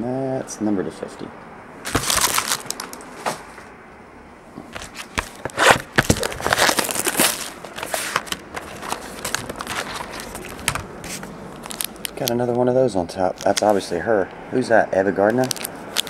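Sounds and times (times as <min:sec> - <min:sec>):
plastic card sleeves rustling: 0:01.9 - 0:03.1, 0:04.8 - 0:12.4, 0:13.4 - 0:14.0, 0:15.2 - 0:16.0.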